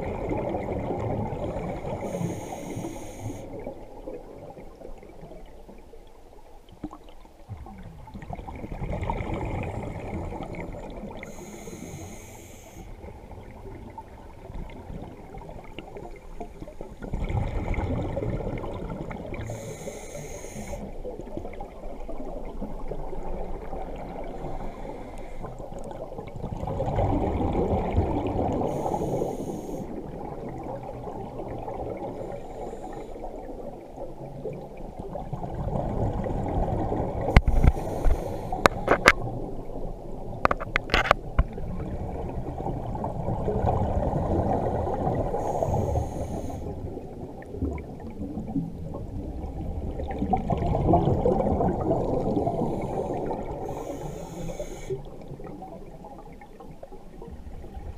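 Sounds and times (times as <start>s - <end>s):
exhaled bubbles underwater: 0.0s - 12.2s, 12.8s - 57.9s
regulator hiss: 2.0s - 3.5s, 11.3s - 12.9s, 19.4s - 20.9s, 28.7s - 29.9s, 37.4s - 38.6s, 45.4s - 46.7s, 52.7s - 55.1s.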